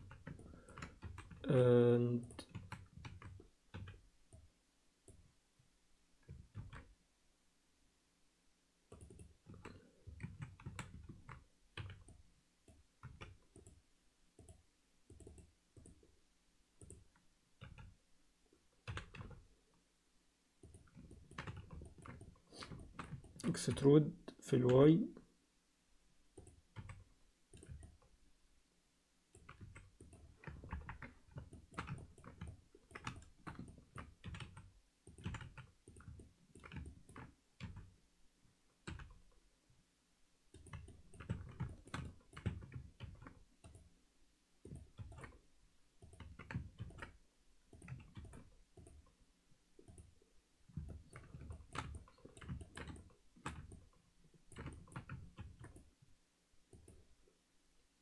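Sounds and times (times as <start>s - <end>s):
keyboard and mouse clicking: 0.0s - 1.6s, 2.2s - 5.3s, 6.2s - 6.9s, 8.9s - 13.8s, 14.4s - 16.1s, 16.8s - 18.0s, 18.8s - 19.4s, 20.6s - 23.9s, 26.3s - 28.1s, 29.3s - 37.9s, 38.8s - 39.3s, 40.5s - 43.9s, 44.6s - 45.4s, 46.0s - 49.2s, 49.8s - 55.9s, 56.7s - 57.0s.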